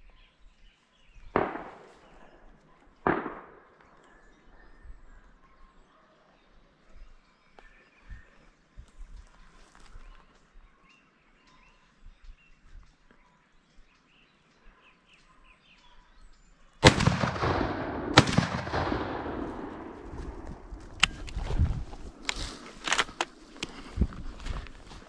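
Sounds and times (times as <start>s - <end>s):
shotgun blasts with echo: 1.3s - 4.2s, 16.8s - 23.6s
faint bird chirps: 3.7s - 16.8s.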